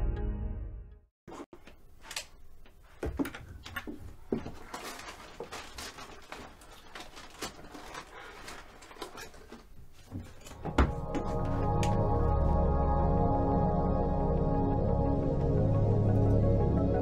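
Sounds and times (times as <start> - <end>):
rummaging at a wooden desk: 1.3 - 12.0.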